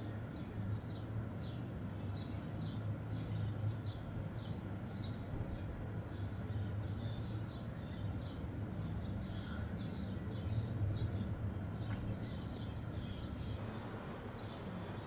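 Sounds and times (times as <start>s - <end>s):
sparrows chirping: 0.0s - 15.0s
steady low hum: 8.6s - 15.0s.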